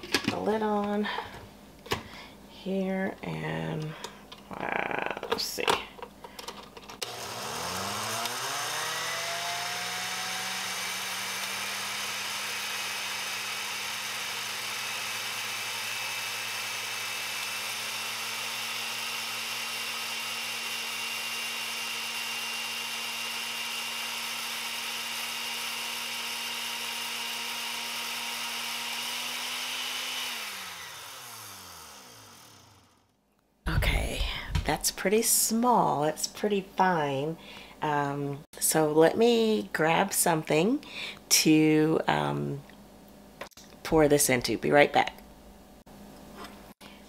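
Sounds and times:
blender motor grinding: 7.0 - 33.2.

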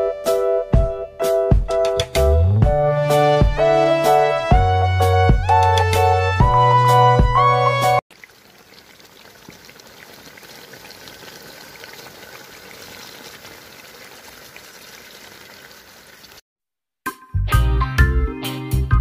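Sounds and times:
curry simmering and bubbling: 8.1 - 16.4.

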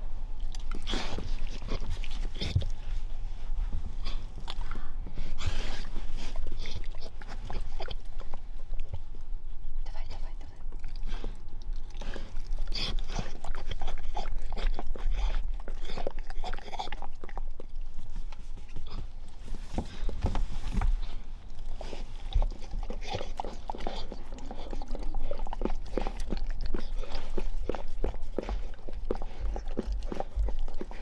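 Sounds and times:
dog licking wetly: 22.3 - 31.0.

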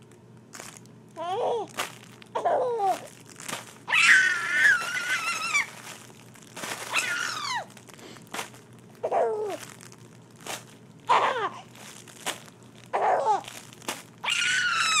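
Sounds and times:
crinkle toy crackling: 0.0 - 15.0
baby laughing: 2.4 - 3.1, 9.0 - 9.6, 11.1 - 11.7, 13.0 - 13.4.

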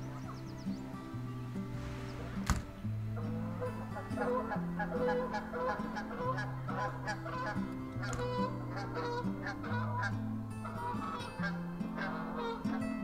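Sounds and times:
background music: 0.0 - 13.0
geese honking: 0.0 - 13.0.

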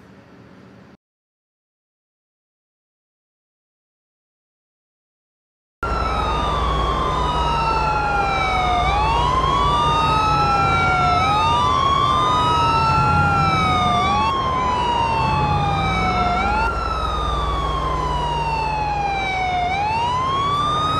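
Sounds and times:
police sirens wailing: 5.8 - 20.9.

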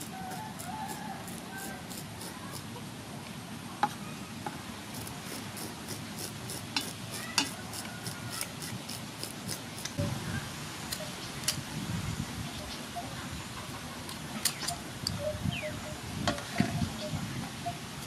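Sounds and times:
scissor blade scraping fish scales: 0.0 - 2.7, 4.9 - 10.0.

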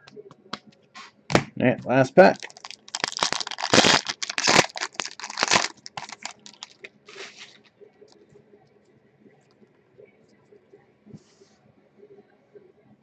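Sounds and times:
foil wrapper tearing and crinkling: 2.3 - 7.6.

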